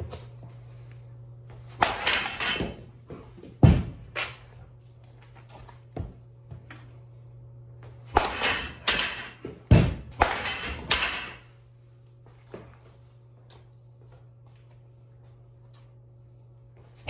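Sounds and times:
low electrical hum: 0.0 - 17.0
bat cracking ball: 1.7 - 2.8, 8.1 - 11.2
ball knocking and rattling net: 1.8 - 4.5, 8.1 - 11.5.

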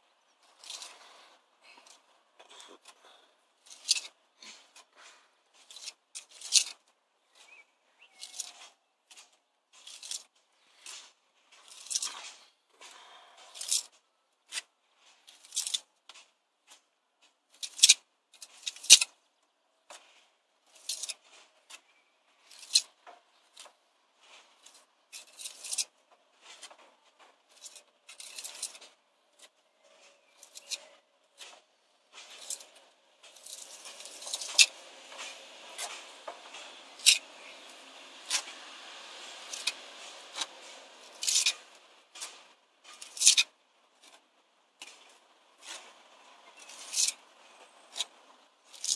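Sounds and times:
trowel scraping mortar: 29.7 - 44.2.

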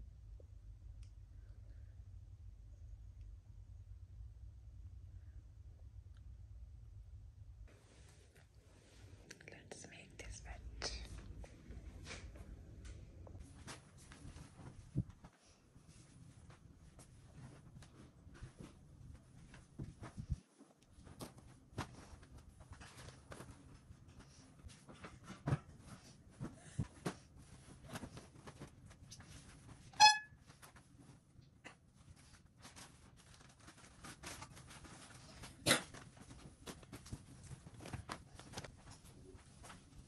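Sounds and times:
rustling cloth: 11.1 - 40.0
crinkling plastic: 32.0 - 40.0.

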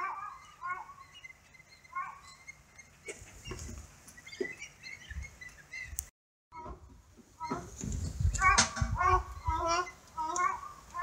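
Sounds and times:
birds high calls: 0.0 - 6.7, 7.3 - 11.0
wind thumps on microphone: 6.7 - 9.8
distant child's voice: 8.4 - 11.0.

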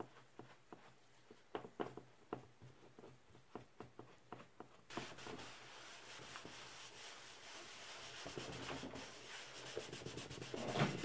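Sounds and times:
paper towel scrubbing: 4.9 - 11.0.

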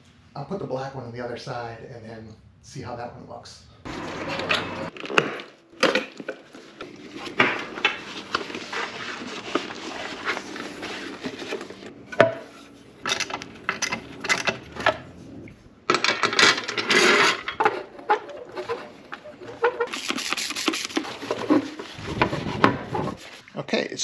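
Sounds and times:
rustling: 6.2 - 11.9.

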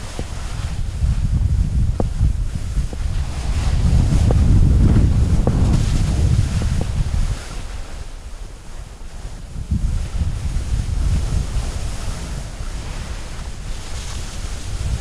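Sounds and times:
skis scraping on snow: 0.0 - 15.0
wind buffeting microphone: 0.0 - 15.0.

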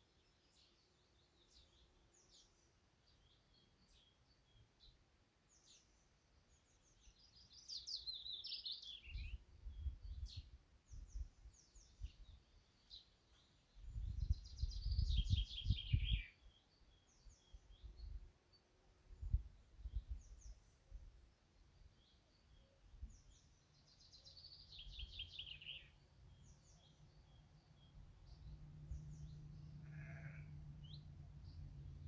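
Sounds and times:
finch singing: 14.2 - 18.2, 22.0 - 32.0.

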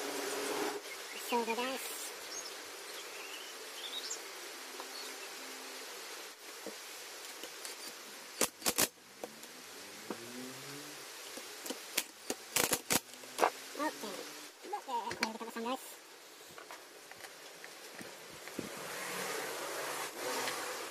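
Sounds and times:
faint steady hiss: 0.0 - 20.9
sharp clicks: 7.5 - 8.9, 11.6 - 13.2.

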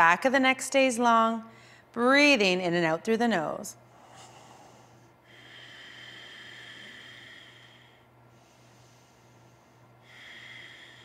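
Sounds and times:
woman breathing through nose: 3.9 - 11.0.

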